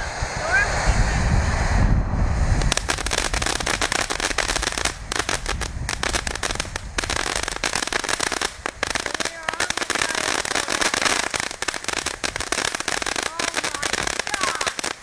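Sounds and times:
firework crackling: 0:00.0 - 0:15.0.

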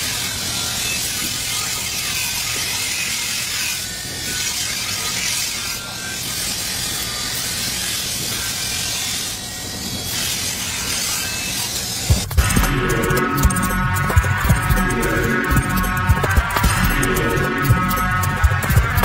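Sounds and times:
blade grinding hiss: 0:00.0 - 0:19.0
grinder motor hum: 0:00.0 - 0:19.0.

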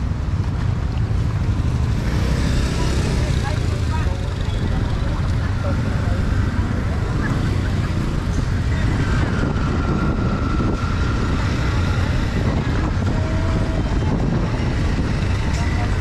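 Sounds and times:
traffic rumble: 0:00.0 - 0:16.0.

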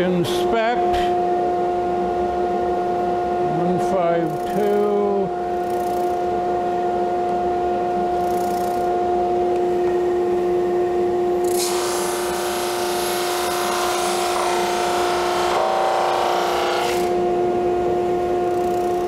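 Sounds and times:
drum sander humming: 0:00.0 - 0:19.0.

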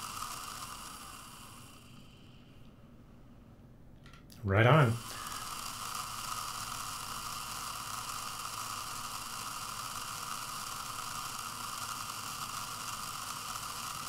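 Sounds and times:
servo motor whine: 0:05.0 - 0:14.0.

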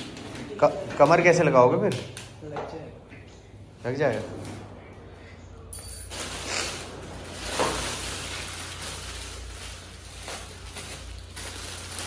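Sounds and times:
plastic wrapping crinkling: 0:05.8 - 0:12.0.

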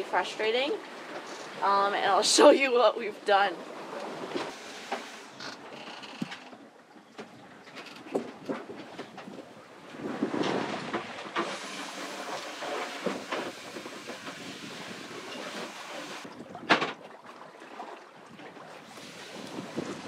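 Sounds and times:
water and wind hiss: 0:00.0 - 0:06.5, 0:09.4 - 0:16.4, 0:18.6 - 0:20.0
boat knocks and clunks: 0:03.8 - 0:20.0.

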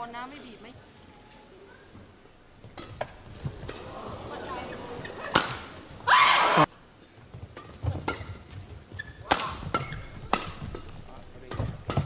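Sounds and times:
racket striking shuttlecock: 0:02.7 - 0:03.9, 0:05.3 - 0:05.8, 0:07.6 - 0:08.4, 0:09.0 - 0:12.0
player shouting: 0:06.0 - 0:06.7.

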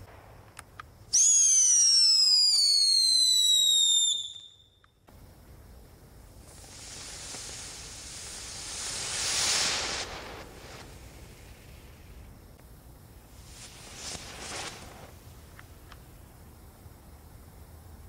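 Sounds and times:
firework whistle sliding down: 0:01.1 - 0:04.7, 0:06.6 - 0:10.9
firework spark spray hissing: 0:06.3 - 0:16.4.

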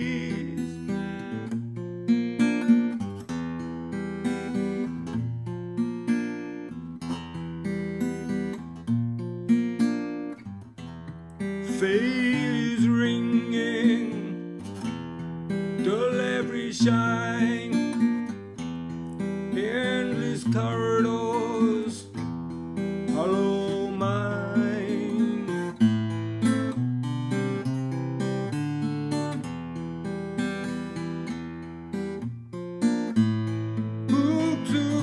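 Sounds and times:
man singing: 0:00.0 - 0:01.0, 0:11.6 - 0:14.6, 0:15.7 - 0:18.3, 0:19.2 - 0:22.2, 0:23.0 - 0:25.9, 0:34.0 - 0:35.0
acoustic guitar riff: 0:00.0 - 0:35.0.

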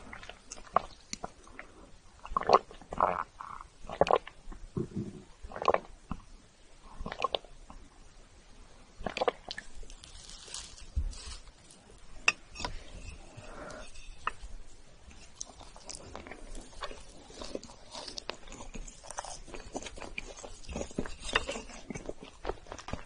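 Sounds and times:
gulping milk: 0:00.0 - 0:06.3, 0:07.0 - 0:07.5, 0:09.0 - 0:09.6
chocolate shavings crunching: 0:09.6 - 0:11.9, 0:15.1 - 0:23.0
spoon scraping cake: 0:11.2 - 0:23.0.

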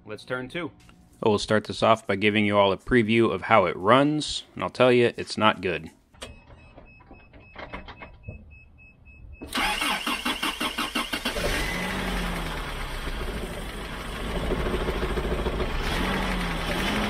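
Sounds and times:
engine idling roughly with misfire: 0:09.5 - 0:17.0
starter cranking engine: 0:09.5 - 0:17.0.

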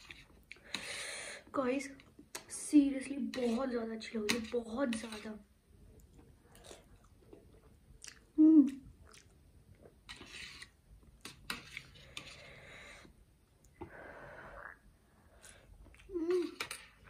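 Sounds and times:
chewing with mouth clicks: 0:06.0 - 0:09.9.

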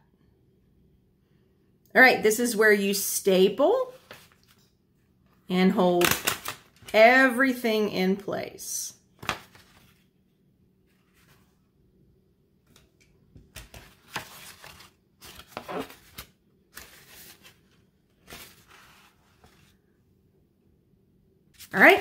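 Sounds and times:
stiff paper rustling and crinkling: 0:03.9 - 0:04.6, 0:13.5 - 0:19.8.

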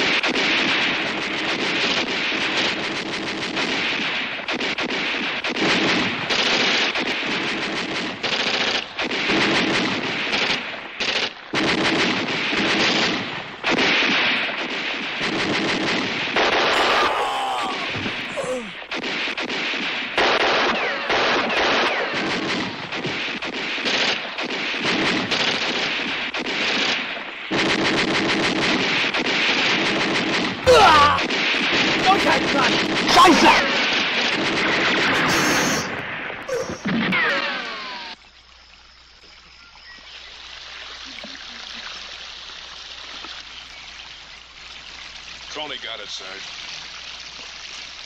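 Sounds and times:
rifle shots: 0:00.0 - 0:17.0, 0:18.9 - 0:37.4.

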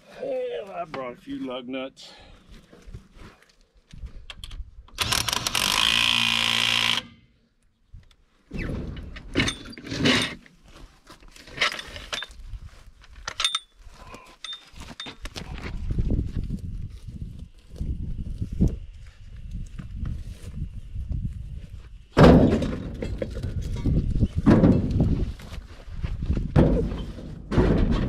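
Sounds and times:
impact wrench buzzing: 0:05.0 - 0:07.2.

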